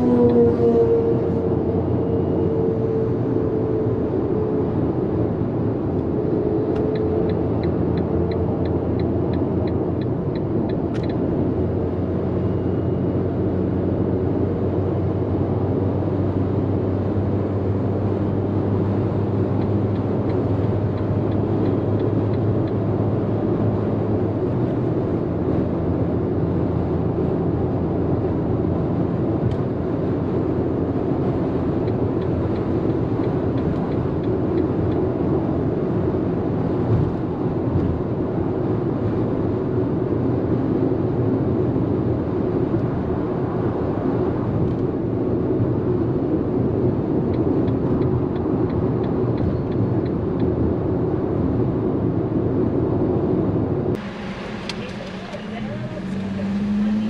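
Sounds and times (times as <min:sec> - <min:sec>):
road and engine noise: 0:00.0 - 0:57.0
turn signal ticking: 0:06.7 - 0:11.3, 0:19.5 - 0:22.8, 0:31.6 - 0:35.1, 0:47.2 - 0:50.6, 0:53.9 - 0:57.0.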